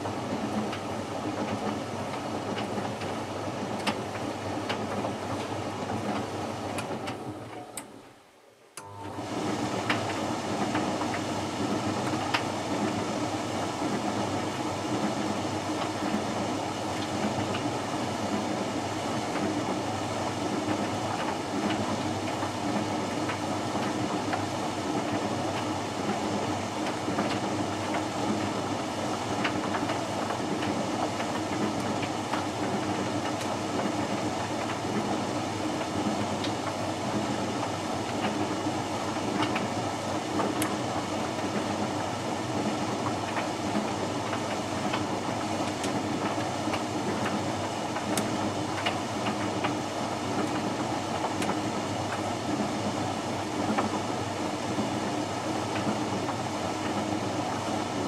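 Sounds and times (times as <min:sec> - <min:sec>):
tumble dryer drum humming: 0:00.0 - 0:58.0
faint clicks of tumbling load: 0:42.7 - 0:53.0.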